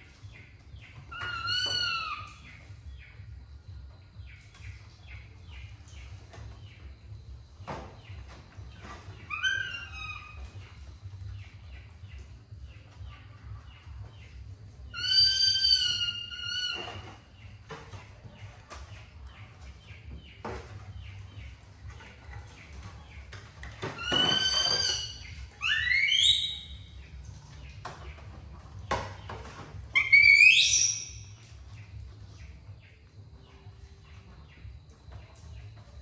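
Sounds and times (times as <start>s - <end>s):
baby monkey squealing: 1.1s - 2.4s, 9.2s - 10.6s, 14.9s - 17.0s, 24.0s - 26.8s, 29.9s - 31.2s.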